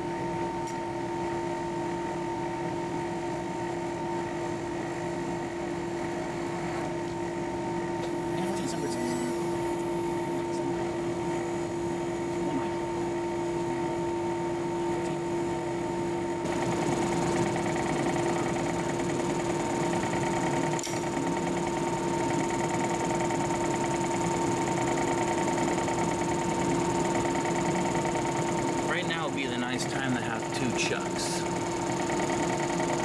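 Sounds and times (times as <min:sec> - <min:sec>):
milling machine motor humming: 0:03.8 - 0:33.0.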